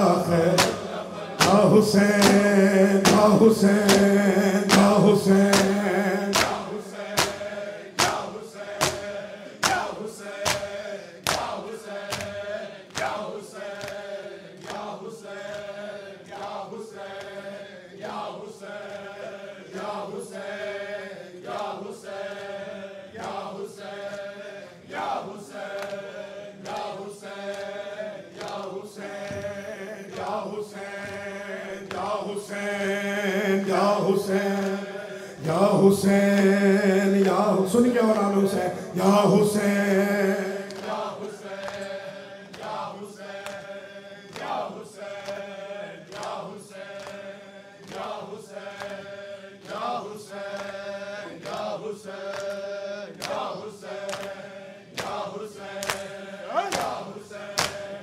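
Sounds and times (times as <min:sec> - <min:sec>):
rhythmic chest-beating: 0:00.0 - 0:37.6
men chanting in unison: 0:00.0 - 0:58.0.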